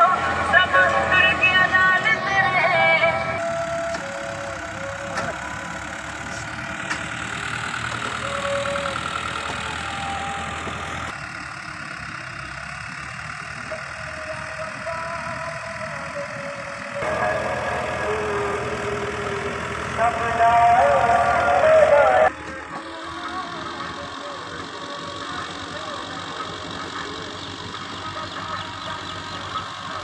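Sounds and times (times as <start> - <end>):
tractor diesel engine under load: 0.0 - 30.0.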